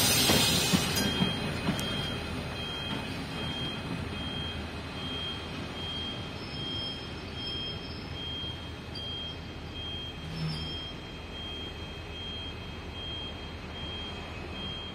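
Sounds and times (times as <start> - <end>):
diesel locomotive running: 0.0 - 14.9
high wheel squeal: 6.0 - 9.5, 10.1 - 11.1.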